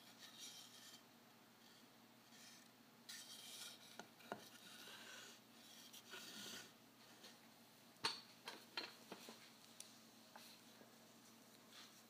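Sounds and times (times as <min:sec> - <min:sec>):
stick rubbing and scraping on cloth: 0:02.3 - 0:06.8.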